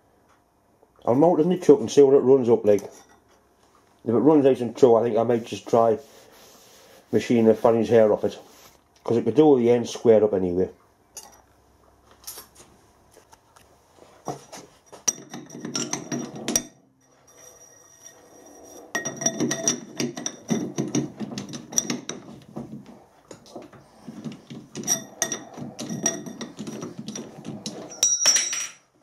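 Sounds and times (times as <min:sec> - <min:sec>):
thin metallic ring: 0:15.0 - 0:20.7, 0:24.8 - 0:28.9.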